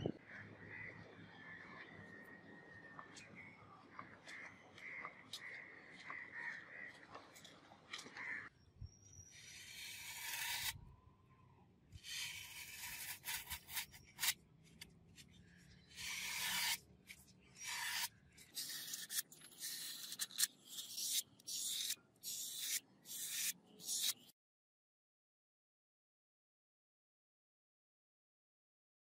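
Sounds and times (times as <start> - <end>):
knife slicing through foam: 9.4 - 10.8, 12.0 - 14.4, 15.9 - 16.9, 17.6 - 24.3.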